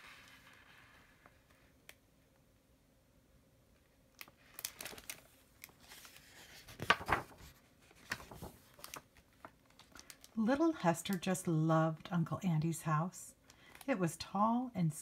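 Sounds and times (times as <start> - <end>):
book page rustling: 4.2 - 11.3.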